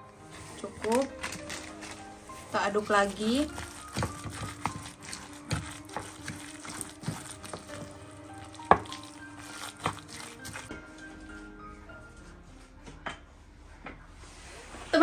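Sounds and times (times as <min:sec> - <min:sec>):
soft background music: 0:00.0 - 0:15.0
spoon stirring thick wet batter: 0:00.2 - 0:11.6.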